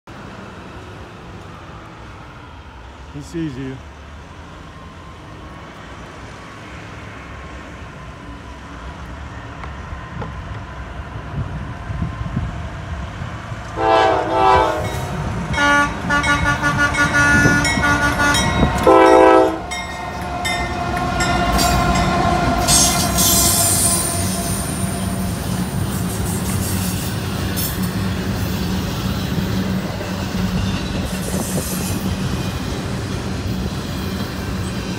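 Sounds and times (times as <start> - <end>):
freight train rumbling: 0.1 - 34.9
locomotive air horn blasts: 13.8 - 19.8
truck air horn blasts: 13.8 - 19.8
high wheel squeal: 16.9 - 32.8.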